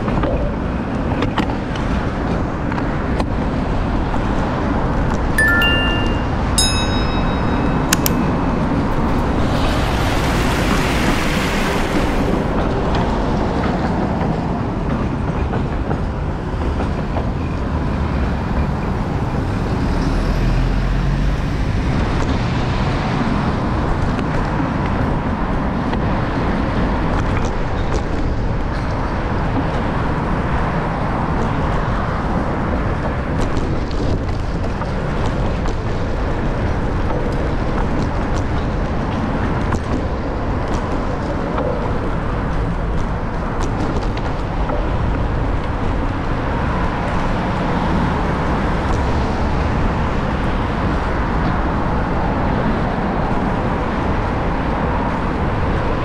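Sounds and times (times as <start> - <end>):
street traffic rushing: 0.0 - 56.0
wind noise: 0.0 - 56.0.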